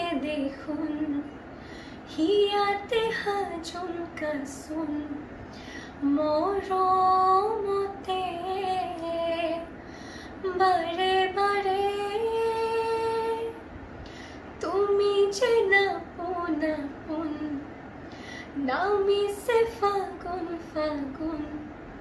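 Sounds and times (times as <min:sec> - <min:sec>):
singer breathing: 0:01.5 - 0:02.1, 0:05.4 - 0:06.0, 0:09.8 - 0:10.4, 0:14.0 - 0:14.6, 0:18.0 - 0:18.6.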